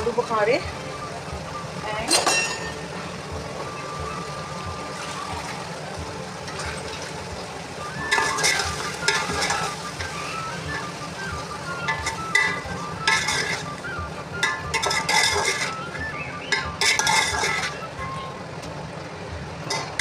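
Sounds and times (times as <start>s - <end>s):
food sizzling: 0.0s - 20.0s
soft background music: 0.0s - 20.0s
metal spoon scraping a pot: 8.1s - 10.2s, 11.9s - 13.6s, 14.4s - 15.8s, 16.5s - 17.8s.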